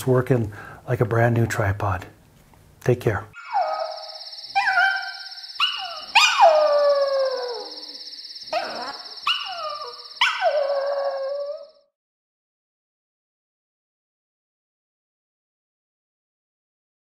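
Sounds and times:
small dog howling and yelping: 3.4s - 11.9s
steady high trill: 3.5s - 11.5s.

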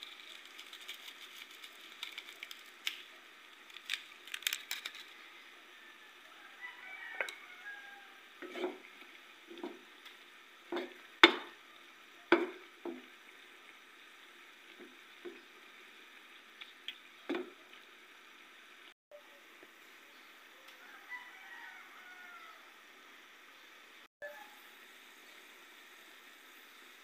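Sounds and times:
food bubbling in a pan: 5.1s - 20.5s, 21.2s - 27.0s
utensil knocking and scraping pan: 8.4s - 8.9s, 9.5s - 9.9s, 10.7s - 11.6s, 12.3s - 13.1s.

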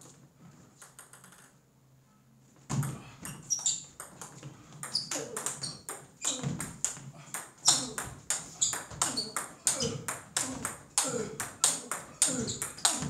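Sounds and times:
table tennis ball clicks: 0.8s - 1.6s.

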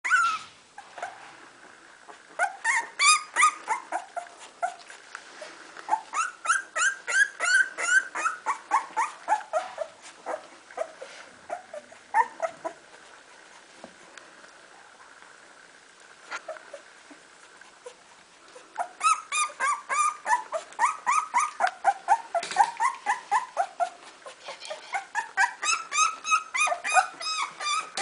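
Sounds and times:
puppy whining and squealing: 0.0s - 1.2s, 2.1s - 5.0s, 5.9s - 12.9s, 16.3s - 18.0s, 18.6s - 28.0s.

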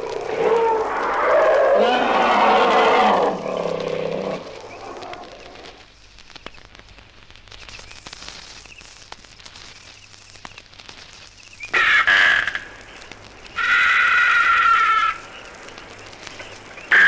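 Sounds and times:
loud animal call: 0.0s - 5.8s, 11.8s - 12.7s, 13.6s - 15.3s
vinyl record crackle and clicks: 0.0s - 17.0s.

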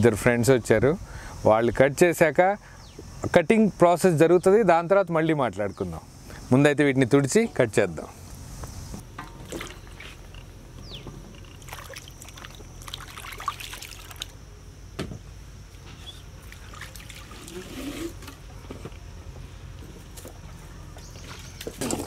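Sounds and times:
water splashing and trickling: 9.3s - 10.4s, 11.4s - 14.4s, 16.4s - 17.8s.

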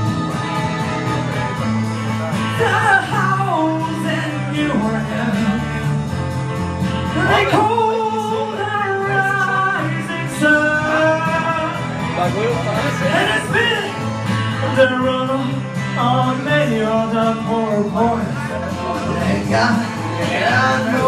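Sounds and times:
guitar accompaniment: 0.0s - 21.0s
man singing into a microphone: 1.9s - 6.1s, 7.1s - 21.0s.

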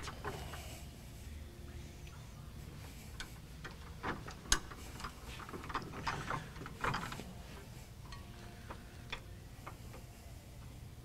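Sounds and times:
metal parts clicking and knocking: 3.1s - 9.8s.

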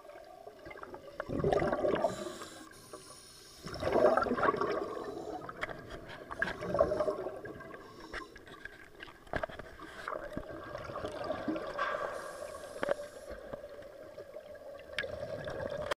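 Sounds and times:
bubbles gurgling underwater: 0.0s - 2.3s, 3.6s - 7.9s, 10.1s - 12.6s, 13.4s - 16.0s.

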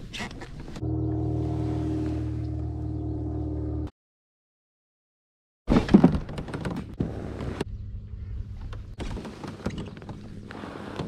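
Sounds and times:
steady low hum: 0.8s - 3.9s, 7.0s - 9.0s.

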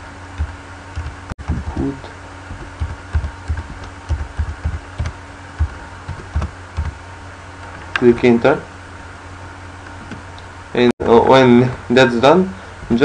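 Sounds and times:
electrical hum: 0.0s - 13.0s
keyboard typing: 0.4s - 7.0s.

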